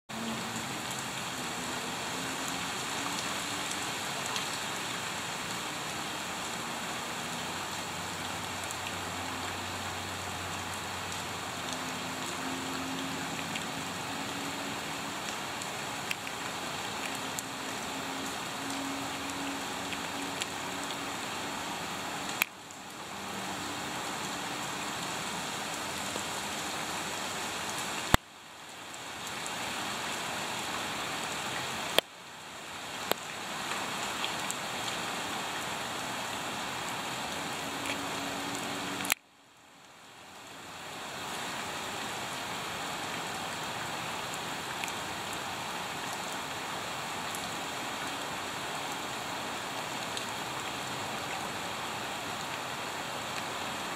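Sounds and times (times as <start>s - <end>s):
rain falling into a puddle: 0.1s - 53.9s.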